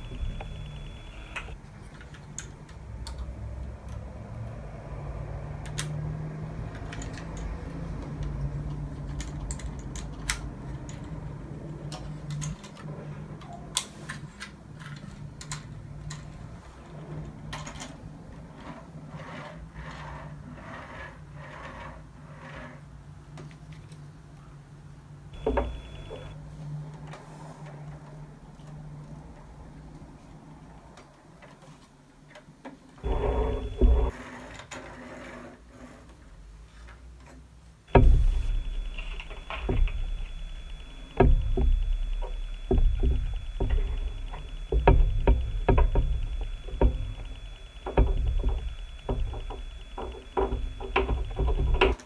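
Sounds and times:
low steady hum: 0.0 - 2.2, 25.4 - 26.4, 37.9 - 52.0.

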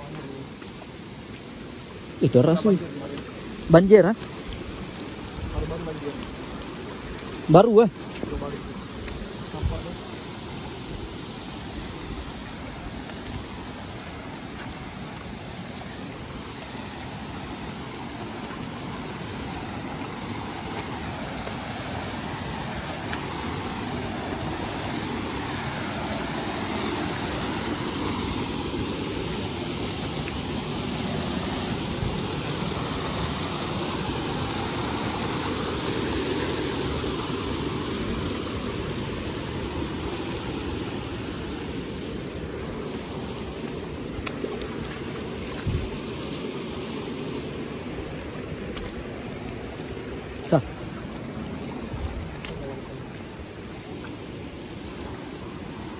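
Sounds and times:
river flowing over stones: 0.0 - 55.9.

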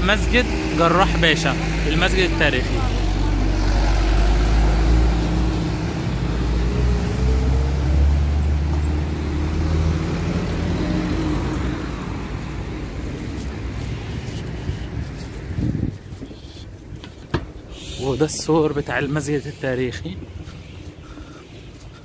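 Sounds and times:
van engine driving past: 0.0 - 14.6
street traffic noise: 0.0 - 22.0.

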